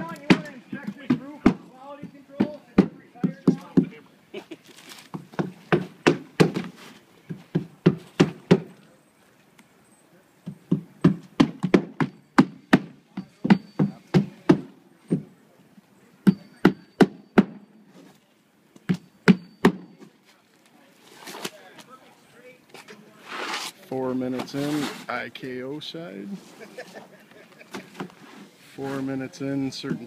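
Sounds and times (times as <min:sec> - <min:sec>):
hammer knocking nails: 0:00.0 - 0:03.9, 0:05.2 - 0:06.7, 0:10.4 - 0:15.2.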